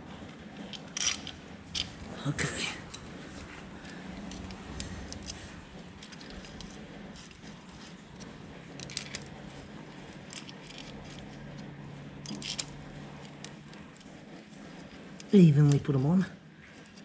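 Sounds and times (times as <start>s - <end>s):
faint low hum: 0.0s - 17.0s
metal bolts and washers clinking: 0.7s - 2.1s, 3.9s - 7.9s, 8.8s - 9.3s, 12.2s - 13.5s.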